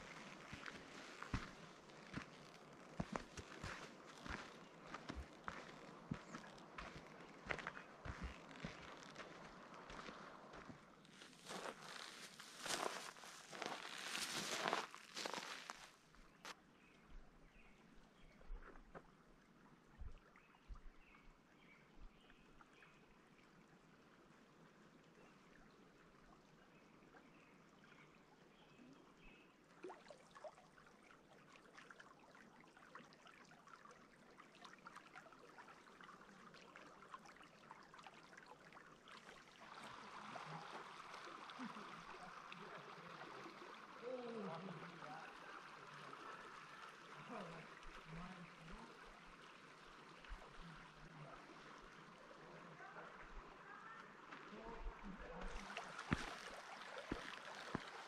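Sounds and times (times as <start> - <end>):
mountain river flowing: 0.0 - 16.5, 29.8 - 58.0.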